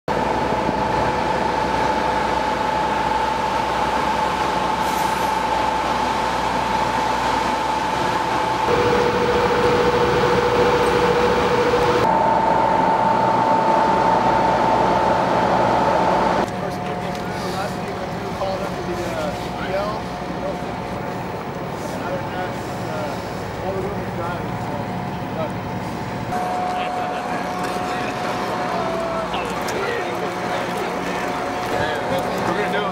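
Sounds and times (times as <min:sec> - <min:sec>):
high whine: 0:00.1 - 0:16.5, 0:23.9 - 0:31.7
diesel engines idling: 0:00.1 - 0:32.9.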